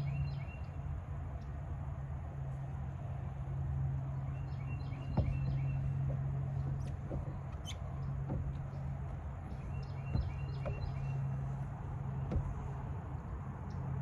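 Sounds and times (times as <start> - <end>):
steady low hum: 0.0 - 14.0
faint knocks: 4.7 - 13.3
bird chirping: 9.4 - 11.6.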